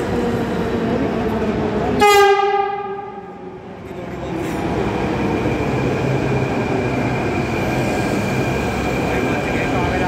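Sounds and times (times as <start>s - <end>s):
train rumbling with high whine: 0.0s - 10.0s
train horn blast: 2.0s - 3.2s.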